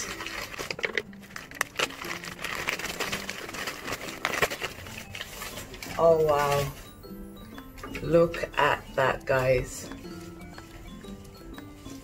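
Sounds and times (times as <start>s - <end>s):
paper rustling and crackling: 0.0s - 7.0s.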